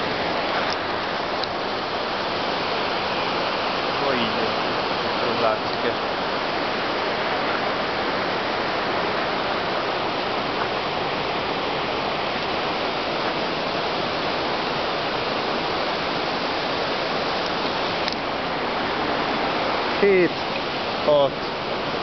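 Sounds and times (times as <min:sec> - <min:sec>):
fast-flowing water rushing: 0:00.0 - 0:22.0.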